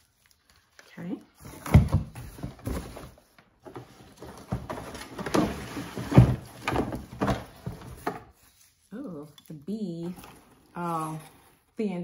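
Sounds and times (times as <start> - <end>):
rustling and scraping of stems: 2.7 - 12.0.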